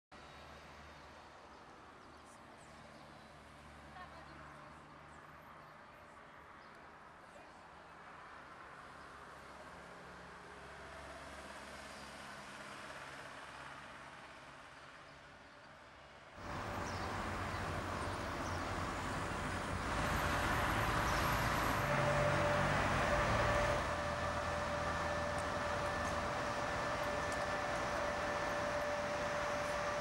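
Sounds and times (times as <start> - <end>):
road traffic hum: 0.2 - 30.0.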